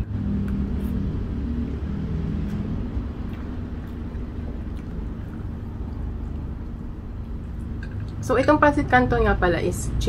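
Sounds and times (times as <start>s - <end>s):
faint hum: 0.0s - 10.0s
low rumble: 0.0s - 10.0s.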